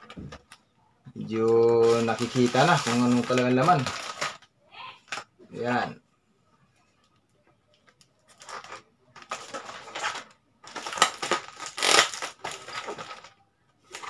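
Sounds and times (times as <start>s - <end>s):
plastic packaging crinkling: 1.2s - 5.3s, 7.9s - 14.0s.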